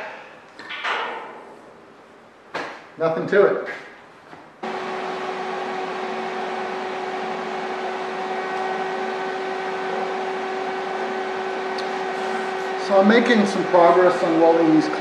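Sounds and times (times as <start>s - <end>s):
welder humming: 4.6s - 15.0s.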